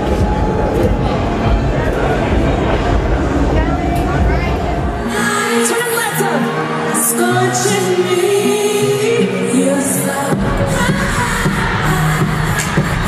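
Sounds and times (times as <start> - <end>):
woman singing: 5.0 - 13.0.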